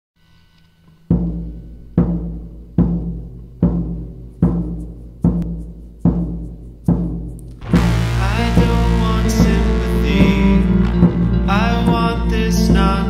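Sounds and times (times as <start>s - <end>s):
low ringing drum hits: 7.6s - 12.9s.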